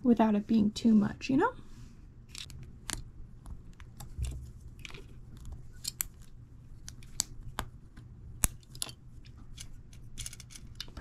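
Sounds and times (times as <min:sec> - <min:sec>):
plastic toy parts clicking: 0:02.3 - 0:03.0, 0:08.4 - 0:11.0.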